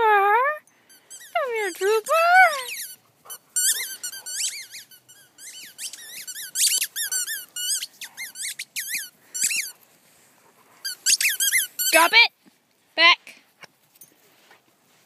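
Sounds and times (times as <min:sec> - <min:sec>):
puppies squeaking: 0:00.9 - 0:09.8, 0:10.8 - 0:12.2.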